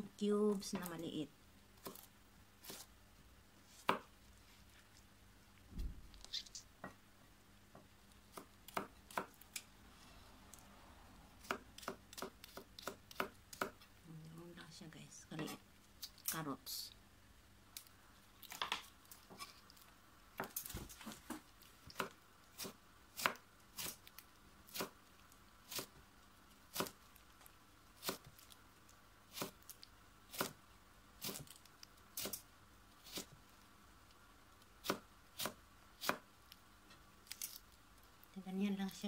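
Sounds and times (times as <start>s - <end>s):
knife chopping on cutting board: 1.8s - 2.9s, 3.8s - 4.1s, 11.4s - 13.8s, 26.7s - 27.0s, 29.4s - 29.6s, 30.3s - 30.6s, 34.8s - 36.2s.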